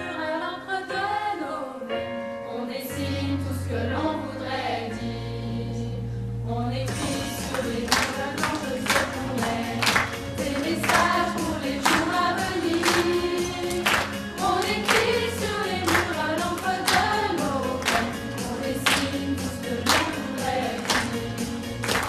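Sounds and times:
choir of women and children singing: 0:00.0 - 0:22.0.

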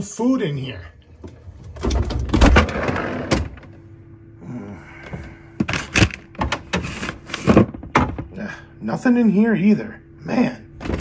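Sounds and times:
refrigerator doors opening and shutting: 0:01.2 - 0:03.8, 0:05.0 - 0:08.5, 0:10.8 - 0:11.0.

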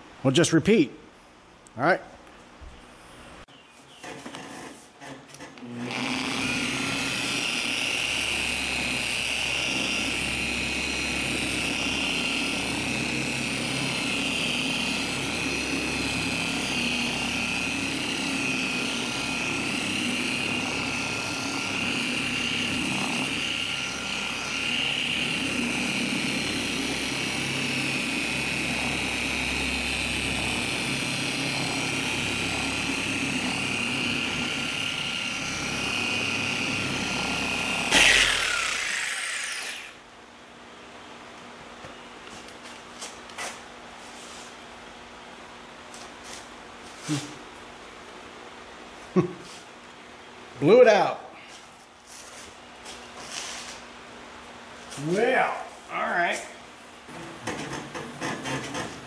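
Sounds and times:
electric polisher whining: 0:05.6 - 0:40.0, 0:57.1 - 0:59.0.

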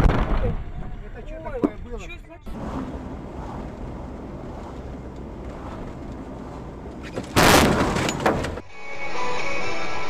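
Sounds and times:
vehicle rumble: 0:00.1 - 0:08.7
wind noise: 0:02.4 - 0:08.6
loud crash: 0:05.6 - 0:08.6
sharp bang: 0:07.2 - 0:08.6.

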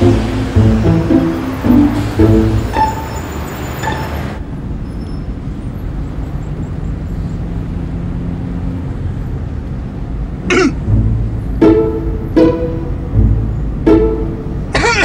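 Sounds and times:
music: 0:00.0 - 0:04.2, 0:10.8 - 0:14.8
car engine and road noise: 0:00.0 - 0:15.0.

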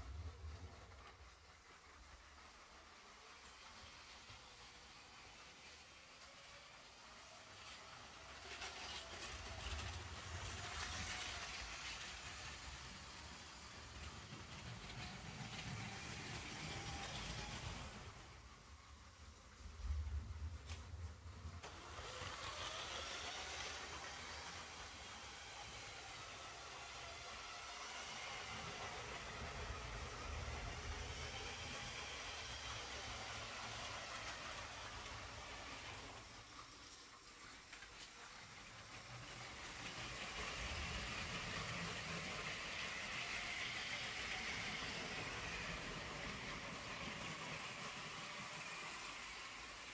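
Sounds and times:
toy train wheels whirring: 0:00.0 - 0:49.9.

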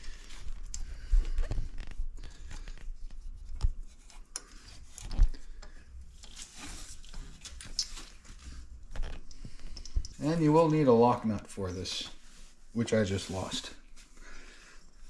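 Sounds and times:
rope rubbing: 0:00.0 - 0:05.4.

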